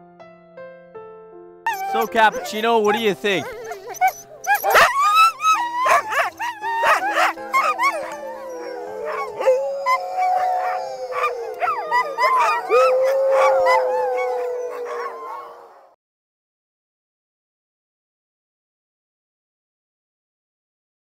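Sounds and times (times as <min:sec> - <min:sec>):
dog long howl: 0:01.7 - 0:16.0
sled dogs barking and yipping: 0:01.7 - 0:16.0.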